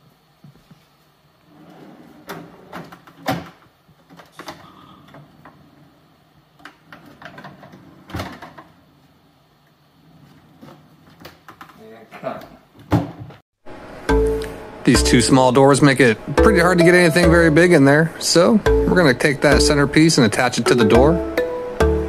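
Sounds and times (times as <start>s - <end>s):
wooden shelves sliding on runners: 1.4s - 2.9s.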